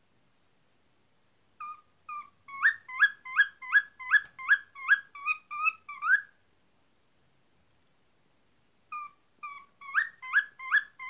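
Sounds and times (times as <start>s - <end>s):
cockatiel whistling: 1.6s - 6.3s, 8.9s - 11.0s.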